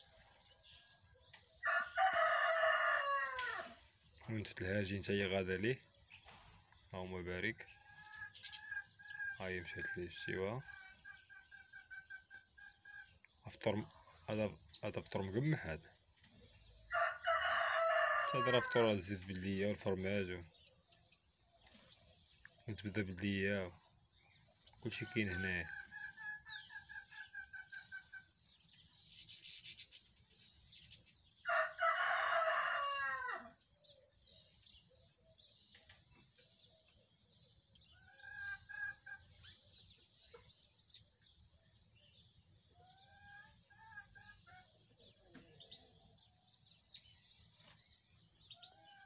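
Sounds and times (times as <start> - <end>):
high twittering of finches: 0.0 - 49.0
rooster crowing: 1.6 - 3.8, 16.9 - 19.0, 31.4 - 33.5.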